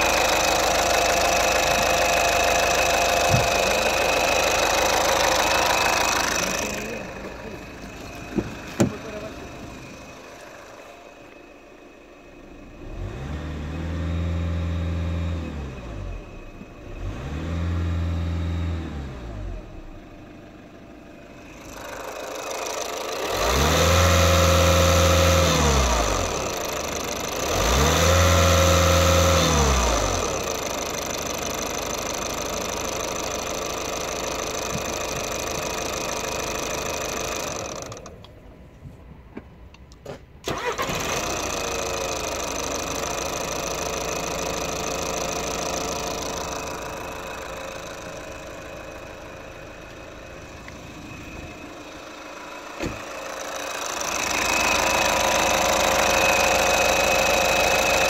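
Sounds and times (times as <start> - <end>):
diesel engine revving: 0.0 - 38.1, 40.4 - 58.0
diesel engine idling: 0.0 - 39.8, 40.4 - 58.0.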